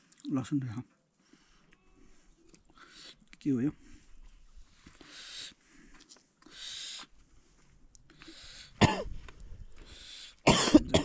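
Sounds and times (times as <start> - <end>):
breathy puffs of air: 3.8 - 8.8, 9.7 - 10.5
person coughing: 8.8 - 9.1, 10.4 - 11.0.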